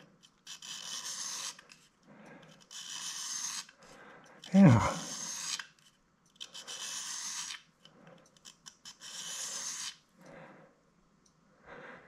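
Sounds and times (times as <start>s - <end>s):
tool bit rasping on stone: 0.2s - 7.8s, 8.4s - 10.0s.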